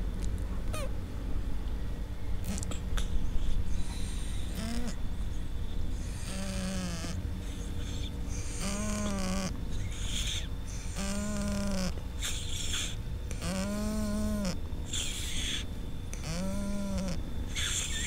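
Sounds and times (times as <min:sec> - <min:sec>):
cat snoring breaths: 0:02.5 - 0:05.0, 0:06.0 - 0:15.6, 0:16.2 - 0:18.0.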